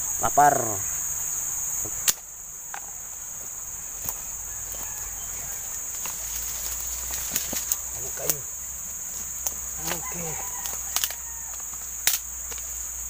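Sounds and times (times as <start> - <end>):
insects droning: 0.0 - 13.0
sticks snapping and rustling: 1.8 - 2.9, 5.8 - 8.5, 9.1 - 12.8
sharp click: 12.0 - 12.6.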